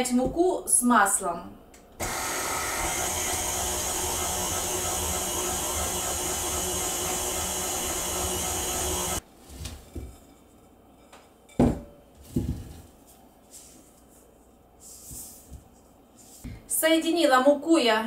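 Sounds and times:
stand mixer running: 0:02.0 - 0:09.2.

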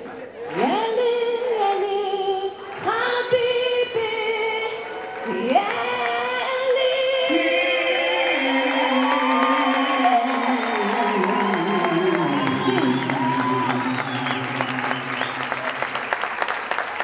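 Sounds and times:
woman singing: 0:00.6 - 0:12.4
man singing in harmony: 0:07.4 - 0:15.4.

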